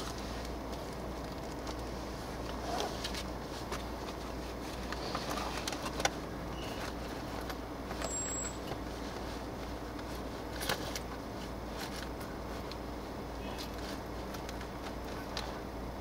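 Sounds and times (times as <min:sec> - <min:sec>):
sharp clicks and light rattles: 0:00.0 - 0:06.2, 0:13.6 - 0:15.7
car engine and road rumble: 0:00.0 - 0:16.0.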